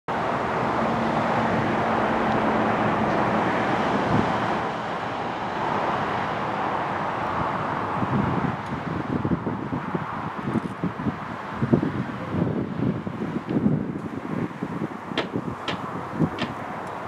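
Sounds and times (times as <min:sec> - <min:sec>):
low engine hum: 0:00.1 - 0:17.0
road traffic noise: 0:00.1 - 0:17.0
single knock: 0:15.2 - 0:16.6.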